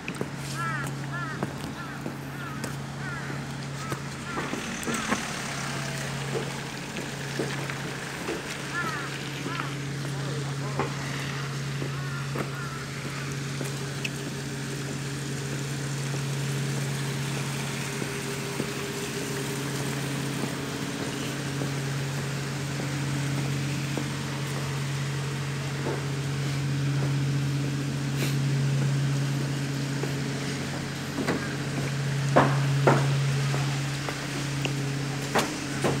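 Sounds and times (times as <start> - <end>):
engine humming steadily: 0.0 - 36.0
short knocks: 30.8 - 33.8.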